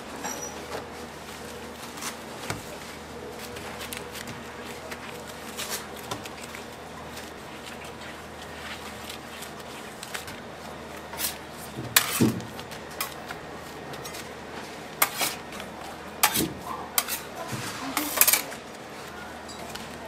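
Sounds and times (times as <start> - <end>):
dough being folded and pressed: 0.7 - 15.9.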